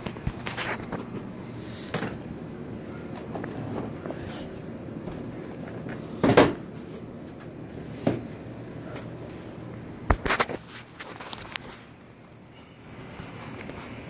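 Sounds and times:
steady low background noise: 0.0 - 10.6.

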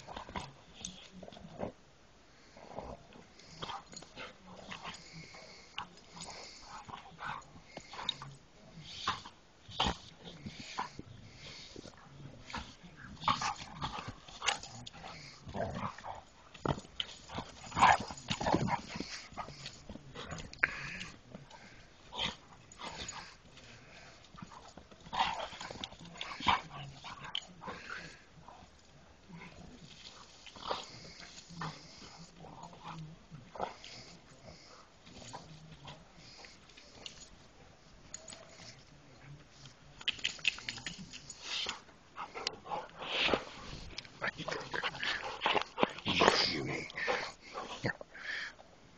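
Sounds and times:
dog growling and grunting: 12.4 - 16.3, 42.4 - 48.3.

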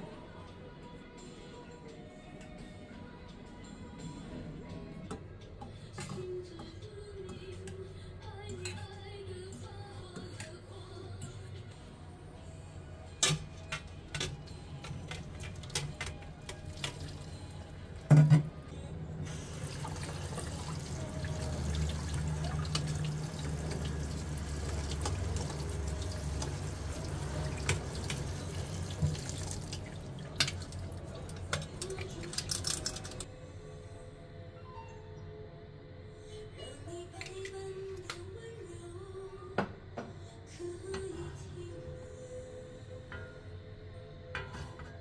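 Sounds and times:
kitchen tap running: 16.5 - 17.4, 19.3 - 33.2.

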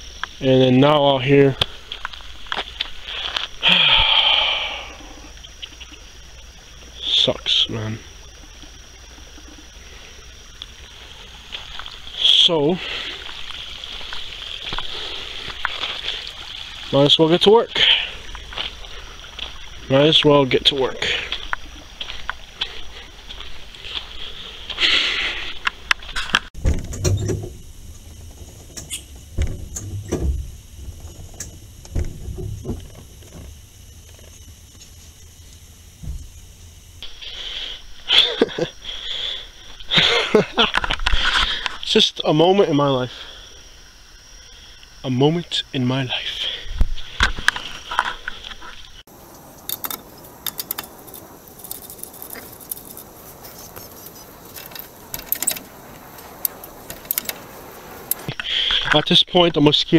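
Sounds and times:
faint steady hiss: 0.0 - 59.9
muffled thuds and clunks: 25.9 - 36.7.

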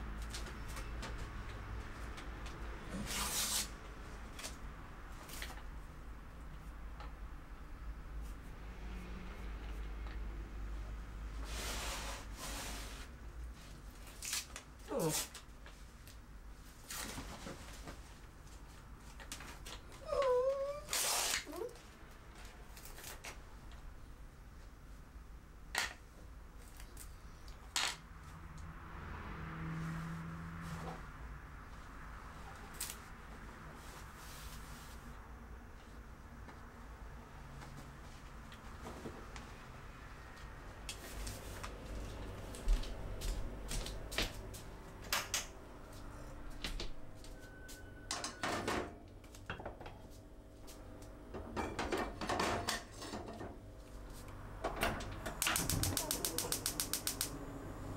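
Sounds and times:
sharp clicks and light taps: 55.4 - 57.3.

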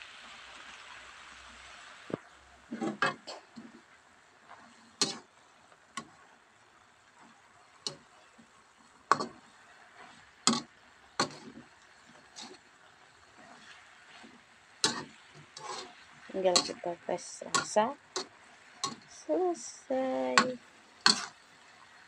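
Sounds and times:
faint background hiss: 0.0 - 22.0
metal spatula clanking on wok: 5.0 - 5.2, 9.1 - 9.4, 10.5 - 12.6, 14.8 - 15.9, 16.5 - 19.1, 20.4 - 21.4.

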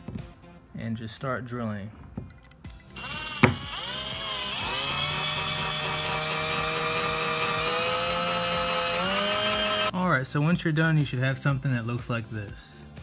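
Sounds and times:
electric drill drilling: 2.9 - 9.9.

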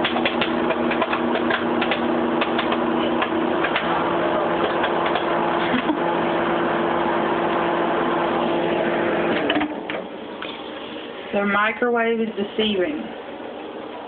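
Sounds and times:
popcorn popping: 0.0 - 5.9
microwave oven hum: 0.0 - 14.0.

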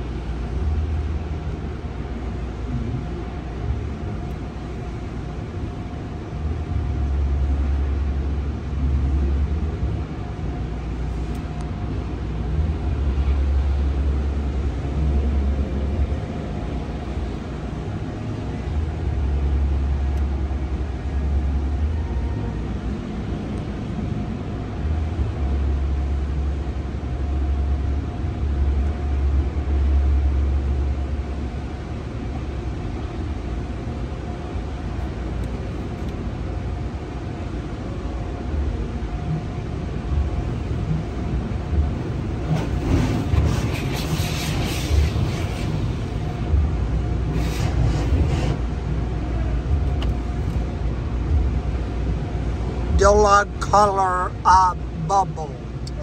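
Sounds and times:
deep rumble: 0.0 - 53.7
water spraying on car: 41.9 - 49.1.

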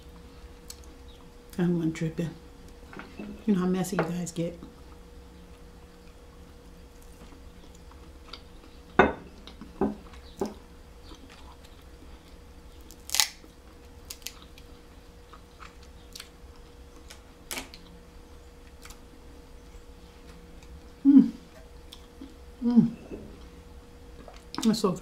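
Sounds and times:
quiet chewing: 0.1 - 1.6, 4.6 - 22.4
crab shells cracking: 12.9 - 14.7.

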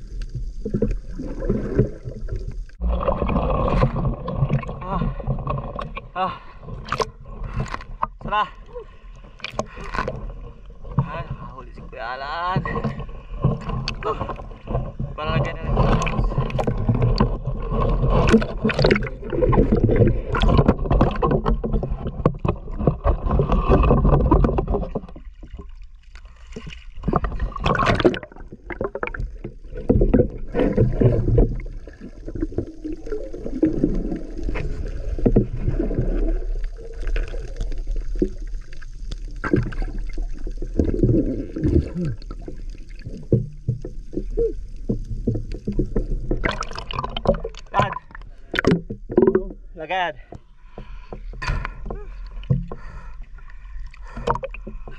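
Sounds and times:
muffled underwater surges: 0.0 - 25.7
water sloshing and splashing: 0.0 - 54.9.

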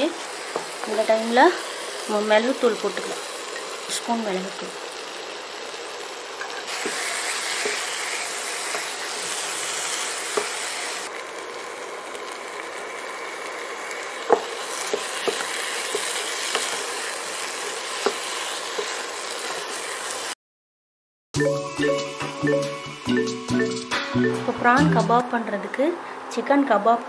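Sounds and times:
food sizzling in a pan: 0.0 - 20.4.

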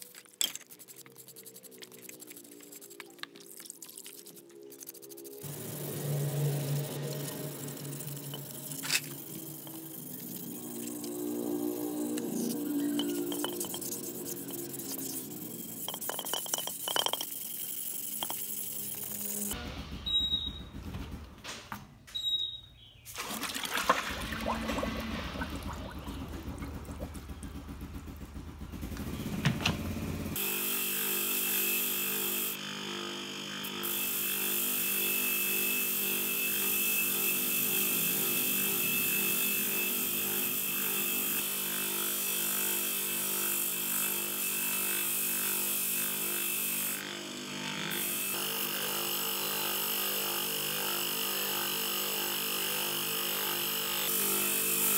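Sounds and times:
wire wheel scouring rust: 0.0 - 19.6
part clinking and splashing in liquid: 12.9 - 14.0, 15.8 - 18.6.

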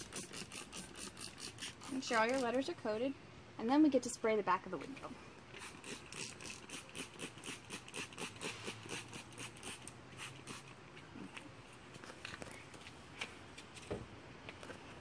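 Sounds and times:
spray bottle squirting: 0.0 - 2.6, 5.5 - 10.8.

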